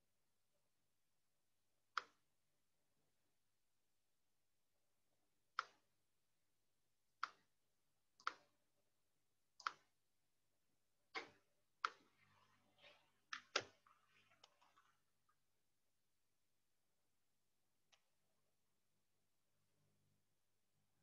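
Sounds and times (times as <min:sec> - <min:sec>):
faint rustling of handling: 0:12.0 - 0:15.6.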